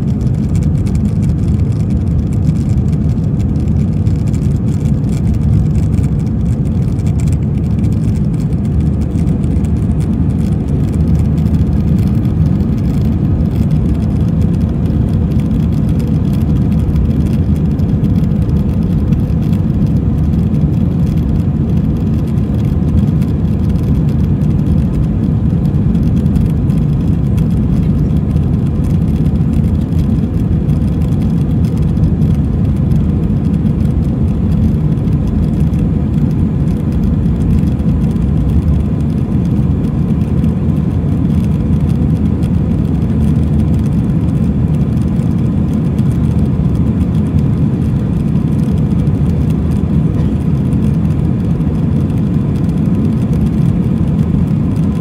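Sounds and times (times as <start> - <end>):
jet engines and rushing air: 0.0 - 55.0.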